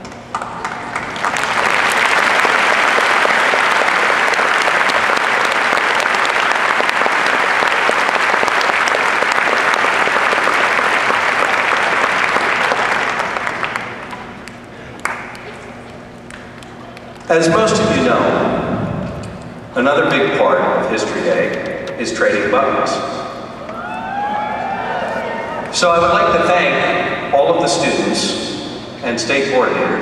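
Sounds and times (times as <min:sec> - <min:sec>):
audience applauding: 0:00.3 - 0:17.3.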